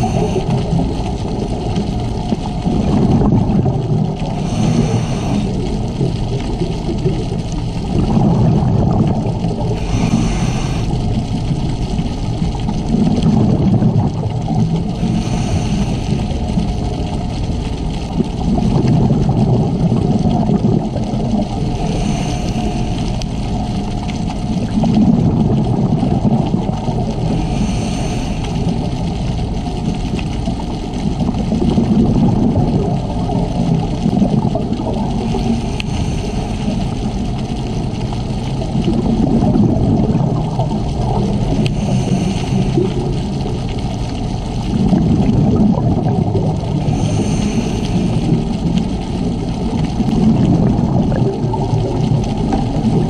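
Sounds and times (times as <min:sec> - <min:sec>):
regulator inhale hiss: 0:00.0 - 0:00.9, 0:04.2 - 0:05.9, 0:09.5 - 0:11.2, 0:14.8 - 0:16.5, 0:21.7 - 0:23.6, 0:27.2 - 0:29.2, 0:35.2 - 0:37.5, 0:41.5 - 0:44.1, 0:46.8 - 0:49.0
exhaled bubbles rumbling: 0:00.0 - 0:53.0.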